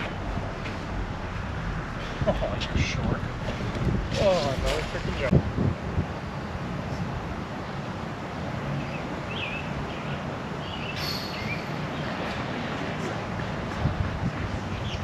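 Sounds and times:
wind rumble on microphone: 0.0s - 8.4s, 12.2s - 15.0s.

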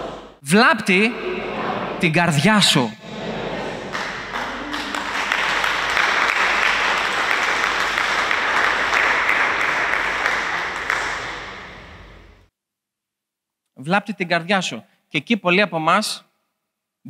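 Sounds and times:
crowd clapping: 3.5s - 12.5s.

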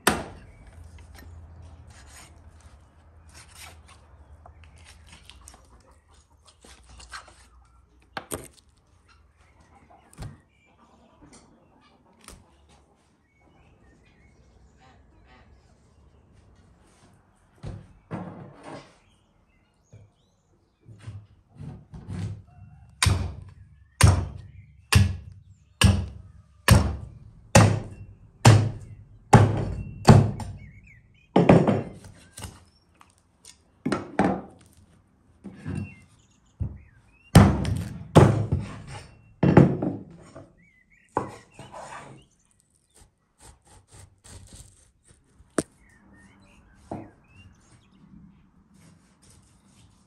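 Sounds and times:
meat chopping on wooden board: 23.0s - 30.7s
light cutting sounds: 42.4s - 45.9s.

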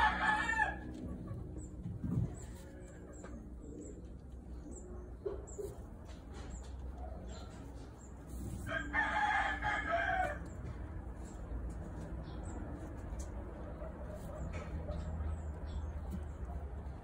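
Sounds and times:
rooster crowing: 0.0s - 1.0s, 8.6s - 10.5s.

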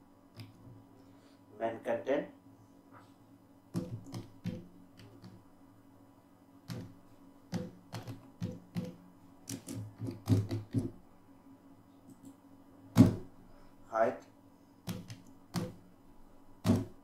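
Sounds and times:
keyboard typing: 3.7s - 5.4s, 6.7s - 10.9s, 14.9s - 15.8s.

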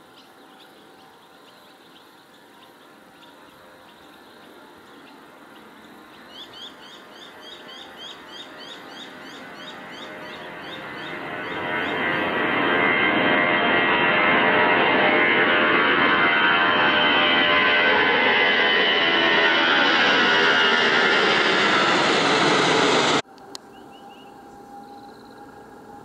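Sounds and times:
small bird chirping: 0.1s - 12.2s
distant jet engine roar: 0.5s - 26.0s.

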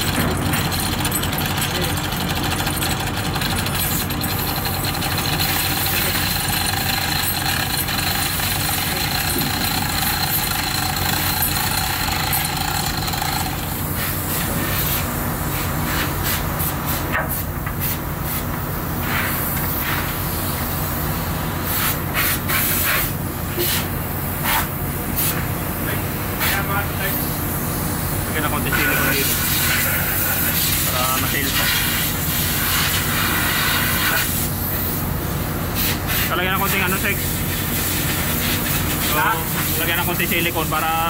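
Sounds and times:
machinery drone: 0.0s - 14.8s.

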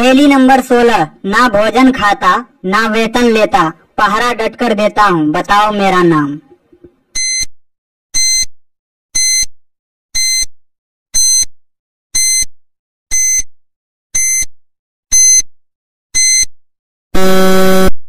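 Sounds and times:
high-pitched electronic timer beeps: 7.2s - 7.5s, 8.2s - 8.5s, 9.2s - 9.5s, 10.2s - 10.5s, 11.2s - 11.5s, 12.2s - 12.5s, 13.1s - 13.5s, 14.2s - 14.5s, 15.1s - 15.5s, 16.2s - 16.5s.

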